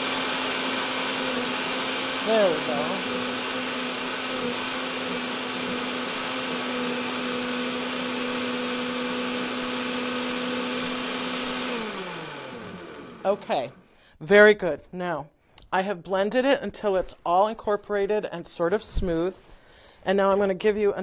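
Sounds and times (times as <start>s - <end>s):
blender motor winding down: 0.0s - 13.8s
electric blender running: 0.0s - 13.8s.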